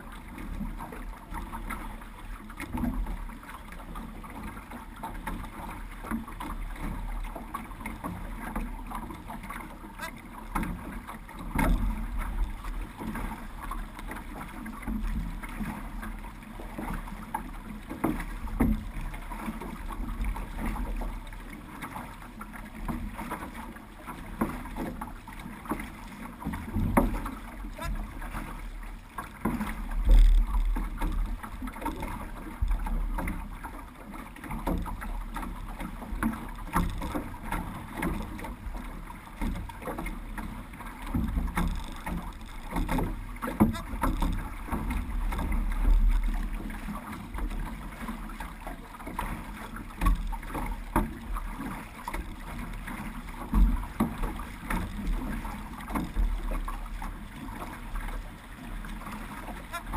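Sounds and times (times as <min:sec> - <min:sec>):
water sloshing against hull: 0:00.0 - 0:59.9.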